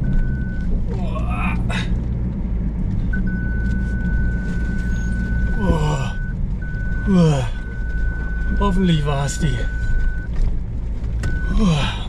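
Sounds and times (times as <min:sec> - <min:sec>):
pickup engine running: 0:00.0 - 0:12.0
high electronic warning beep: 0:03.2 - 0:10.3.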